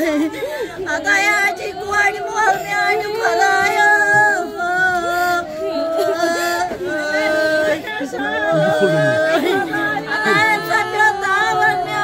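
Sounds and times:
person singing long notes: 0:01.4 - 0:12.0.

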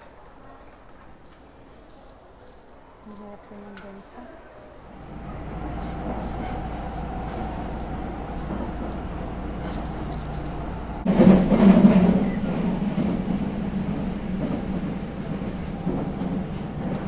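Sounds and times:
subway train rumbling: 0:00.0 - 0:17.0
train rushing and rattling: 0:04.6 - 0:17.0.

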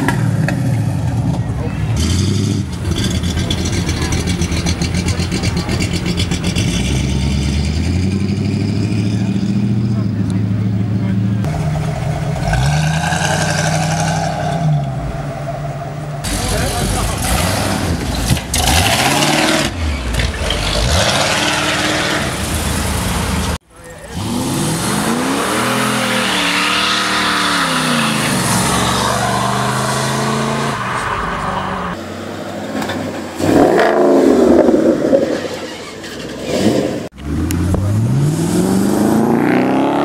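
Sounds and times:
car engines revving: 0:00.0 - 0:40.0
tyres spinning in a burnout: 0:24.1 - 0:32.0.

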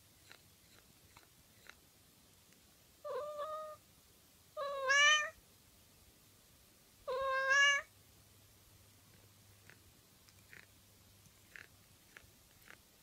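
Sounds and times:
cat meowing: 0:03.0 - 0:03.8, 0:04.6 - 0:05.4, 0:07.1 - 0:07.9.

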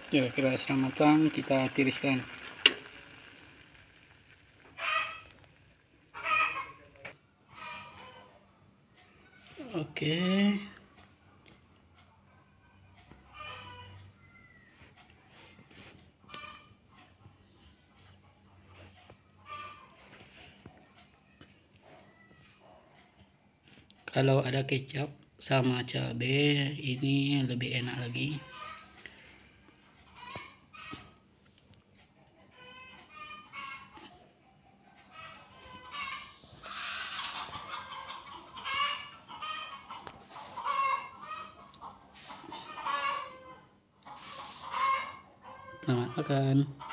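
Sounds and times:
chickens clucking: 0:00.0 - 0:46.9
faint animal cries: 0:04.6 - 0:05.4, 0:06.1 - 0:08.4, 0:13.2 - 0:15.0, 0:19.4 - 0:20.5, 0:30.1 - 0:31.2, 0:32.5 - 0:34.3, 0:35.0 - 0:41.7, 0:42.3 - 0:46.9.

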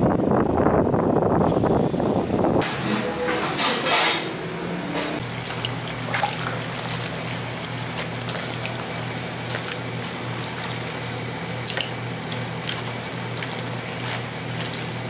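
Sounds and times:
low steady hum: 0:02.6 - 0:15.0
wet squelching and sloshing: 0:05.2 - 0:15.0.

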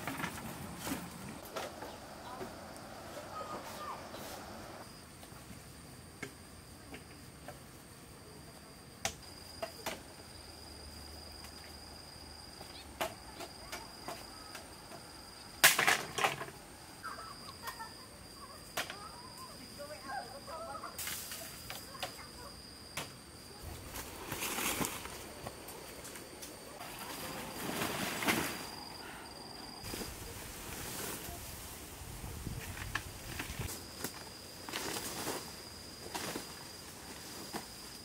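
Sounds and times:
rustling through leaves and grass: 0:00.0 - 0:05.4, 0:23.5 - 0:38.0
high insect drone: 0:00.0 - 0:38.0.

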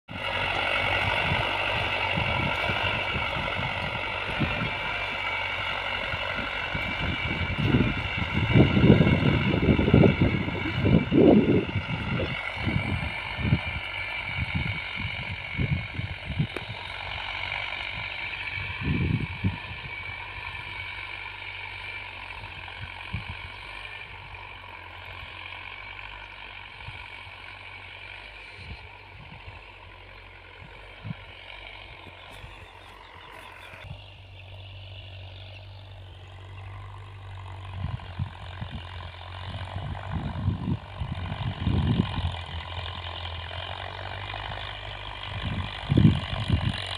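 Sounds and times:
distant tractor diesel engine: 0:00.0 - 0:46.9
wind buffeting microphone: 0:00.1 - 0:21.0, 0:22.3 - 0:24.4, 0:30.4 - 0:34.2, 0:36.8 - 0:46.9.

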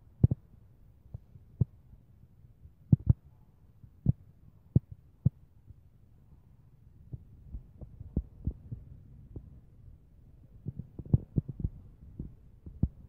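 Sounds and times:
faint low hum: 0:00.0 - 0:13.0
dull low thumps: 0:07.1 - 0:09.7, 0:10.5 - 0:13.0.

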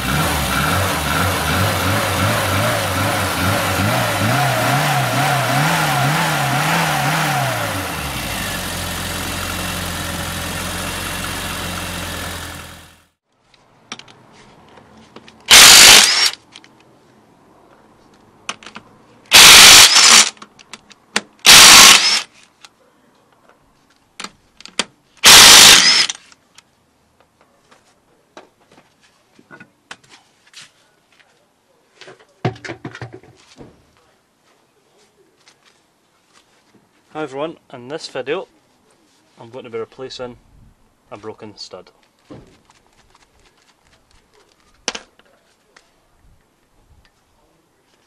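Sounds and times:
car engine revving: 0:00.0 - 0:13.0
impact wrench rattling: 0:15.5 - 0:16.4, 0:19.3 - 0:20.4, 0:21.4 - 0:22.2, 0:25.2 - 0:26.2.

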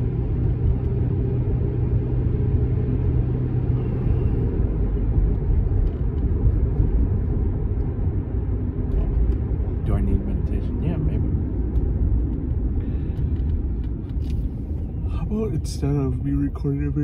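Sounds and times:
engine and tyre rumble: 0:00.0 - 0:17.0
low hum: 0:00.0 - 0:17.0.

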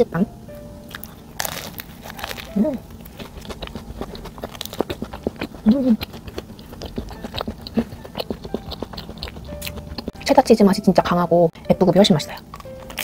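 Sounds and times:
crunchy chewing: 0:00.9 - 0:10.2, 0:12.3 - 0:13.0.

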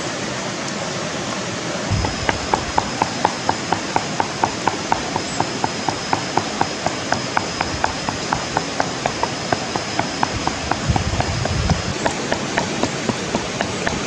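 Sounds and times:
wooden pestle pounding in mortar: 0:01.9 - 0:14.0.

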